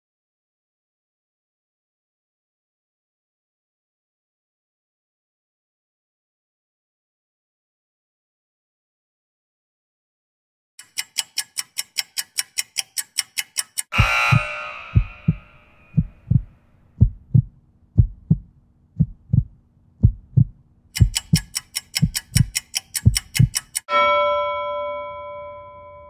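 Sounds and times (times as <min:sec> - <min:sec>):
rapid timer ticking: 0:10.8 - 0:23.9
heartbeat thumps: 0:13.9 - 0:23.6.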